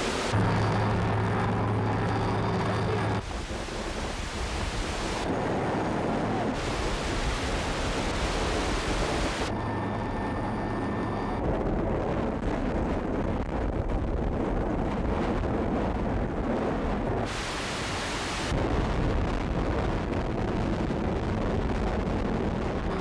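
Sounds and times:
helicopter engine hum: 0.0s - 17.8s
rotor wind buffeting microphone: 0.1s - 23.0s.

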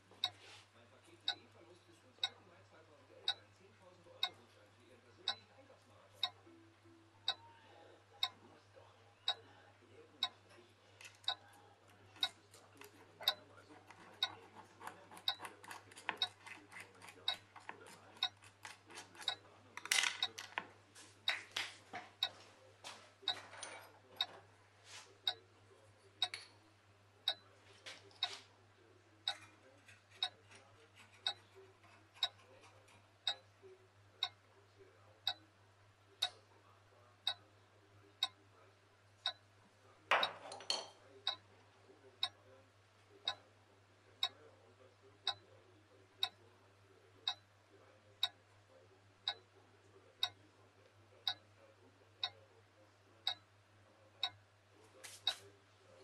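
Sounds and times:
clock ticking: 2.2s - 2.4s, 3.2s - 3.4s, 4.2s - 4.4s, 5.2s - 5.5s, 6.2s - 6.4s, 7.3s - 7.5s, 8.2s - 8.4s, 10.2s - 21.6s, 22.2s - 22.4s, 23.3s - 24.4s, 26.2s - 26.4s, 27.2s - 27.5s, 28.2s - 28.4s, 29.2s - 29.5s, 30.1s - 30.4s, 31.1s - 31.5s, 32.2s - 32.6s, 33.2s - 33.5s, 34.2s - 34.4s, 35.2s - 35.4s, 38.2s - 38.4s, 39.2s - 39.4s, 41.2s - 41.4s, 43.2s - 43.4s, 45.2s - 45.4s, 46.2s - 46.4s, 47.2s - 47.5s, 49.2s - 49.4s, 50.2s - 50.4s, 51.2s - 51.4s, 52.2s - 52.4s, 53.2s - 53.5s, 54.2s - 54.4s.

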